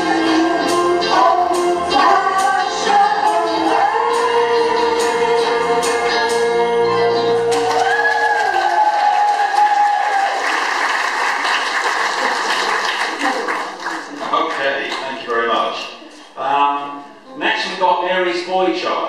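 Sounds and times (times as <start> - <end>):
audience applauding: 7.5 - 15.7.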